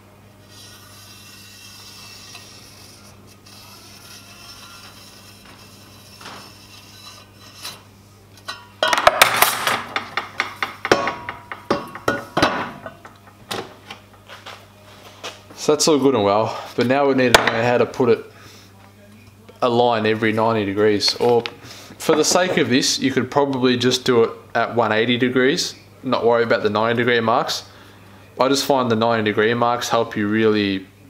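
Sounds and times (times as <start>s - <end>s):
pen scratching along steel rule: 0.4s - 7.8s
metal tubes clanking on workbench: 8.5s - 13.7s.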